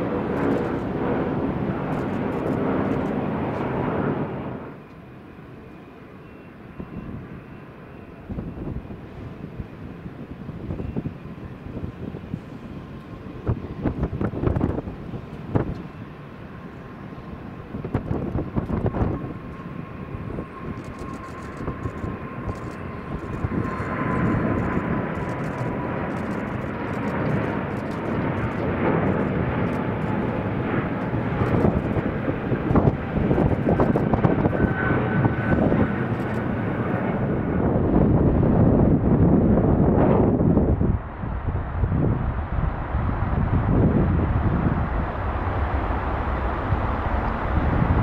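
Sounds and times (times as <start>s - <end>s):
jet engine whine: 0.0s - 48.0s
deep engine rumble: 16.7s - 48.0s.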